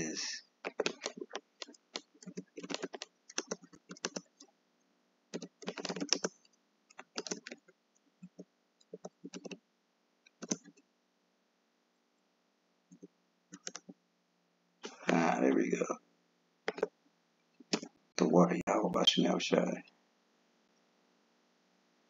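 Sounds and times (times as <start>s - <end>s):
typing on a computer keyboard: 0.7s - 4.5s, 5.3s - 9.6s, 10.3s - 10.8s, 12.9s - 13.9s, 16.7s - 16.9s, 17.6s - 17.9s.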